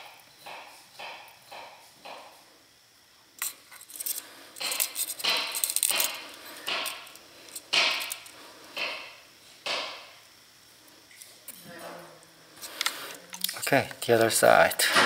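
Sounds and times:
soldering iron hissing and clicking: 0:03.4 - 0:11.3.

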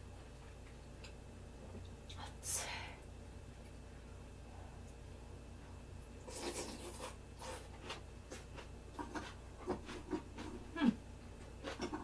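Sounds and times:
person chewing food: 0:06.2 - 0:12.0.

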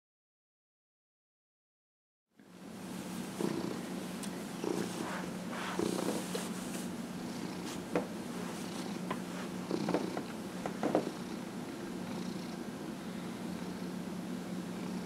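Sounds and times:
hands rustling fur: 0:03.0 - 0:07.0
cat purring: 0:03.3 - 0:15.0.

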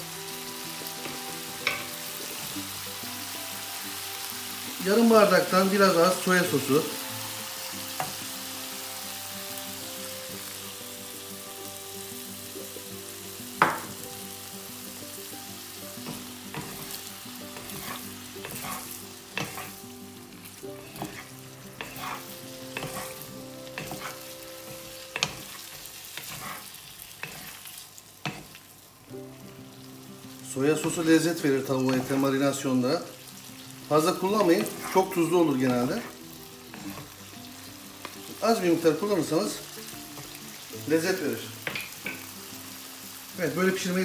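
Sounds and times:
chicken sizzling in a wok: 0:00.0 - 0:44.0
wooden spatula scraping a pan: 0:16.0 - 0:19.8, 0:20.8 - 0:28.6, 0:34.4 - 0:37.2.

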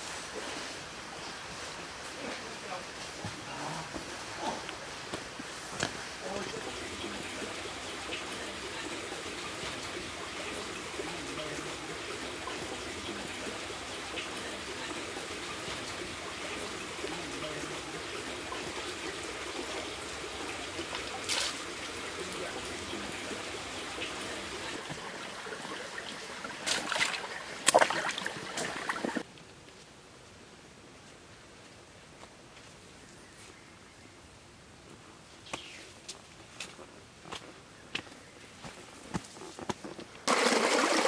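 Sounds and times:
stream trickling over rocks: 0:05.0 - 0:29.3, 0:40.2 - 0:41.0
footsteps splashing in water: 0:26.6 - 0:29.2.

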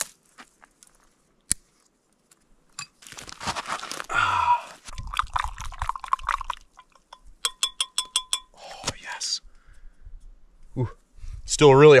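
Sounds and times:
spoon stirring in metal pot: 0:06.4 - 0:08.6.

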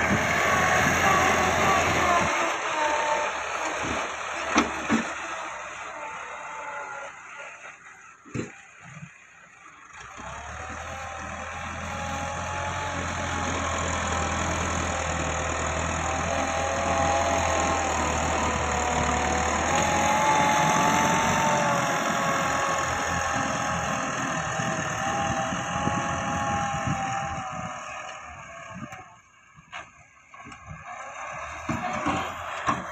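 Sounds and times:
tractor diesel engine under load: 0:00.0 - 0:32.9.

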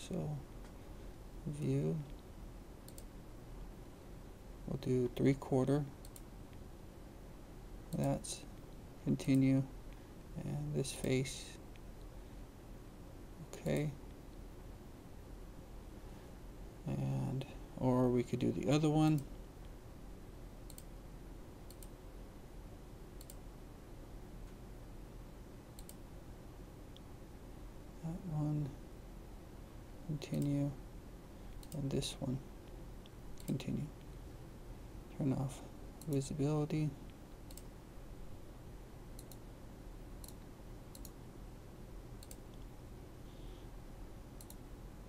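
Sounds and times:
faint low hum: 0:00.0 - 0:45.0
computer mouse clicking: 0:02.8 - 0:03.1, 0:06.0 - 0:06.6, 0:20.6 - 0:20.9, 0:21.6 - 0:22.0, 0:23.2 - 0:23.4, 0:25.8 - 0:26.0, 0:31.5 - 0:31.9, 0:33.0 - 0:34.1, 0:37.4 - 0:37.7, 0:39.2 - 0:39.4, 0:40.2 - 0:41.2, 0:42.2 - 0:42.7, 0:44.4 - 0:44.6.

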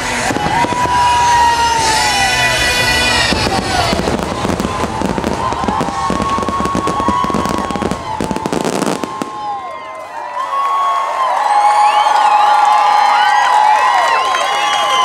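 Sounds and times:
fireworks bangs and crackling: 0:00.0 - 0:09.8
crowd voices: 0:00.0 - 0:15.0.

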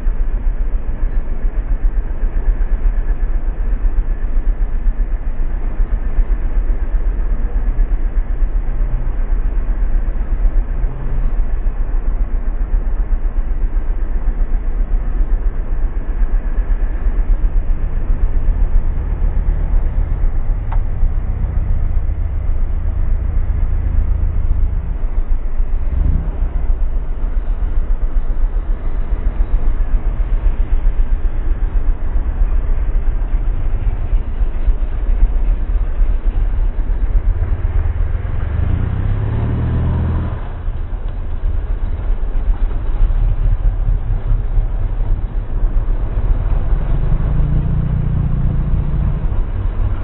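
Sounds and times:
traffic engines rumbling: 0:00.0 - 0:50.0
faint tick: 0:20.7 - 0:20.9.

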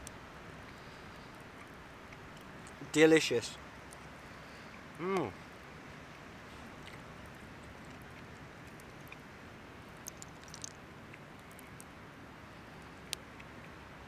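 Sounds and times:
faint steady hiss: 0:00.0 - 0:14.0
crab shell clicks: 0:10.0 - 0:10.8.

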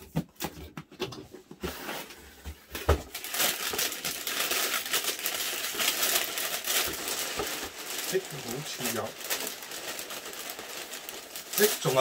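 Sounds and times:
tissue paper rustling: 0:03.1 - 0:12.0.

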